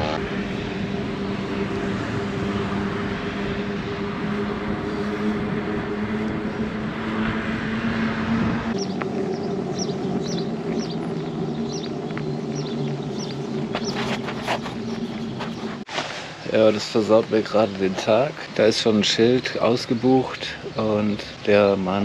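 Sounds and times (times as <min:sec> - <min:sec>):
wind noise on microphone: 0:00.0 - 0:15.9
bike tyres rolling on asphalt: 0:00.0 - 0:22.0.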